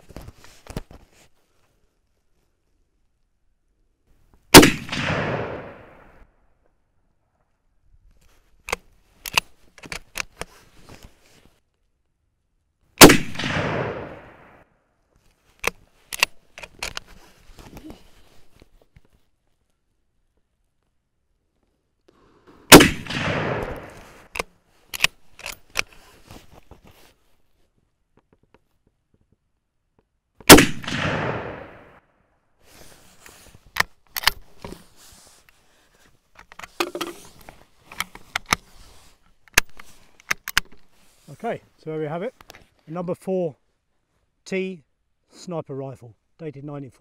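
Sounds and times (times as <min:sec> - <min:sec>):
rifle shot with echo: 0:04.5 - 0:06.2, 0:13.0 - 0:14.6, 0:22.3 - 0:24.3, 0:30.5 - 0:32.0
rifle bolt metallic clicks: 0:08.7 - 0:10.5, 0:15.6 - 0:17.1, 0:22.7 - 0:26.0, 0:33.8 - 0:34.5, 0:39.5 - 0:40.8.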